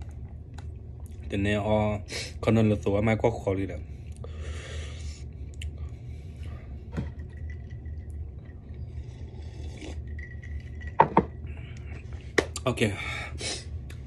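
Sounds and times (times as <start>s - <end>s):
steady low hum: 0.0s - 14.0s
breathy exhale: 4.2s - 5.2s
sipping from a mug: 7.0s - 12.2s.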